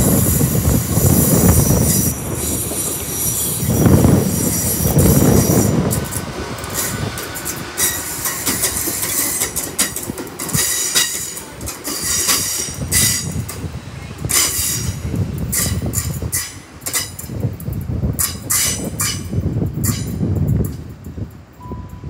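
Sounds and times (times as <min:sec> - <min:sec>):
train wheels clicking over rail joints: 0:00.0 - 0:21.6
train rumble: 0:00.0 - 0:22.0
high wheel squeal: 0:00.4 - 0:06.0.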